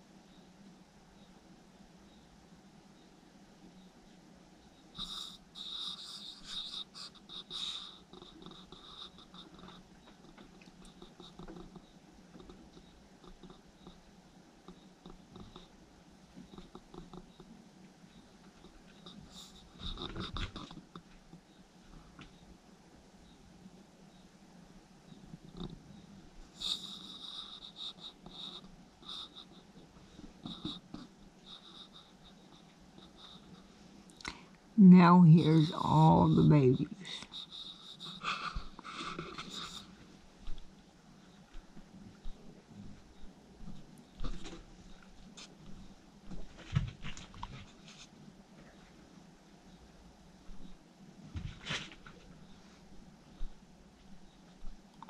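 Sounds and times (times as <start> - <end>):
raccoon chittering: 5.0 - 14.0, 25.5 - 29.8, 35.3 - 40.0
raccoons eating: 5.0 - 22.5, 25.1 - 34.5, 35.2 - 49.0.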